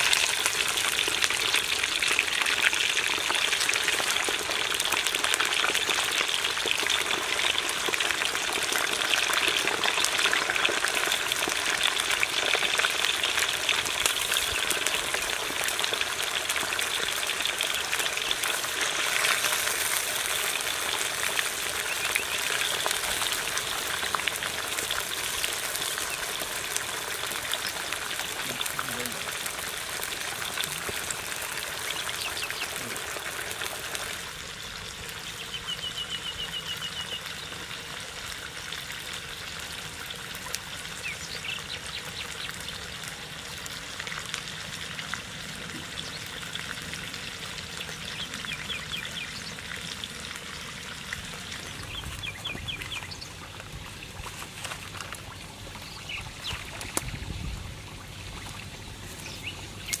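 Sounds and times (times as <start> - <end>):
fish sizzling in hot oil: 0.0 - 60.0
birds chirping trills: 20.1 - 24.0, 31.7 - 33.0, 34.6 - 37.7, 47.7 - 50.1, 51.3 - 53.5, 55.8 - 57.5, 58.8 - 60.0.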